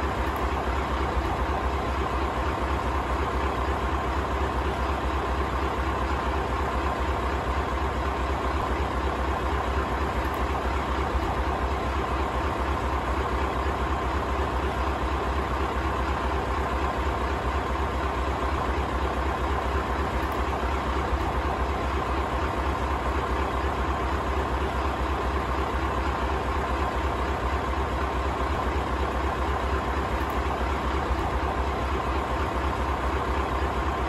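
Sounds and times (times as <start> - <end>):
diesel engine idling: 0.0 - 34.0.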